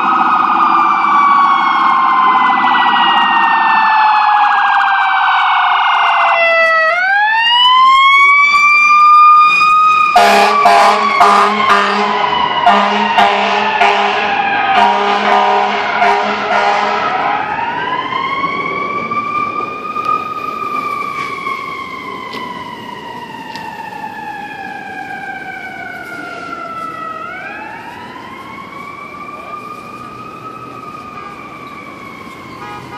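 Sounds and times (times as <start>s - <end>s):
siren wailing: 0.0s - 32.9s
ambulance air horns blasting: 10.1s - 17.4s, 31.0s - 31.7s, 32.5s - 32.9s.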